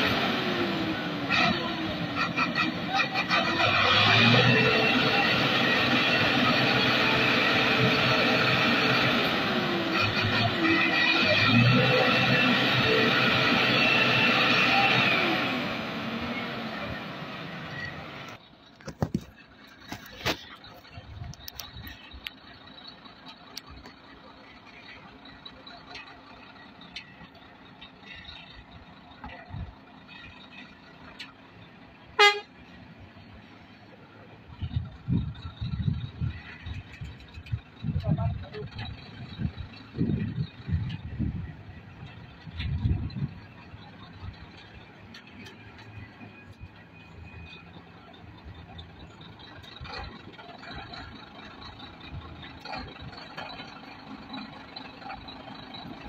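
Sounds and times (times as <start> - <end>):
distant lorry engine humming: 0.0 - 56.0.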